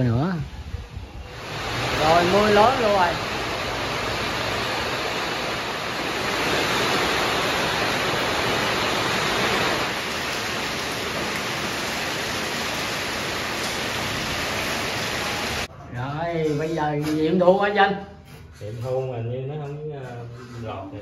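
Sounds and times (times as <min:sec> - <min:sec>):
heavy rain pouring: 0:00.0 - 0:15.7.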